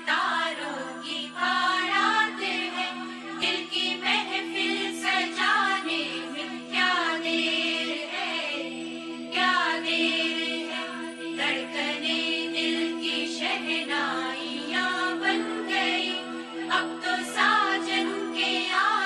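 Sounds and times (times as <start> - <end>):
ornamented melody over drone: 0.7 - 19.0.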